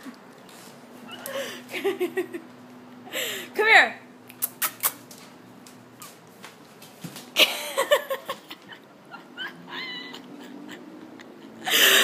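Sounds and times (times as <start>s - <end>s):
dog whining: 9.1s - 10.8s.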